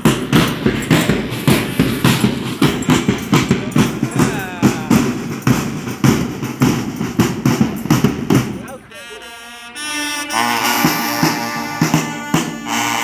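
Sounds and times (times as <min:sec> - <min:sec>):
marching bass drums: 0:00.0 - 0:09.0, 0:10.4 - 0:13.0.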